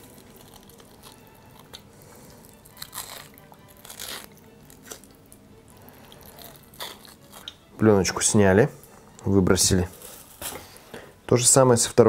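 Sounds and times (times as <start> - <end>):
wet crackling and tearing membrane: 0.0 - 7.7.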